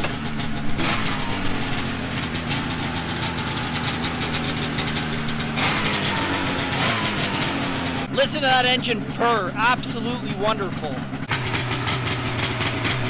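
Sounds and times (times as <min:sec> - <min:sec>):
snowmobile engine idling: 0:00.0 - 0:13.0.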